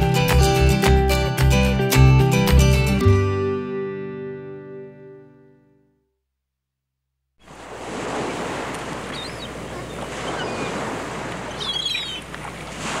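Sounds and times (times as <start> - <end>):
surf rushing: 7.4 - 13.0.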